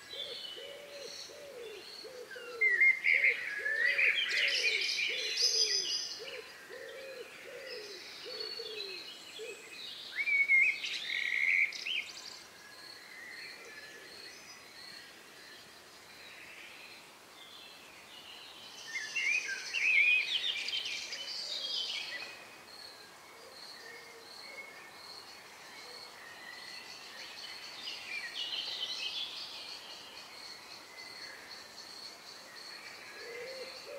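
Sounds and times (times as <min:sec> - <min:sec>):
songbirds twittering: 0:00.0 - 0:33.9.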